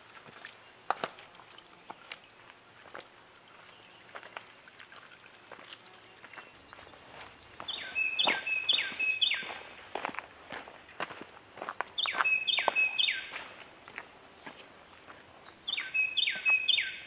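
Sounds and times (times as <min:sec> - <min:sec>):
footsteps on a trail: 0:00.0 - 0:17.0
bird whistling song: 0:06.6 - 0:10.1, 0:11.6 - 0:13.7, 0:14.8 - 0:17.0.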